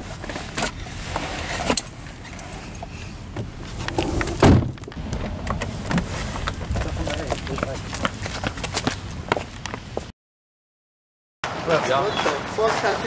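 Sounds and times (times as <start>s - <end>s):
heavy thump against car body: 4.2s - 4.9s.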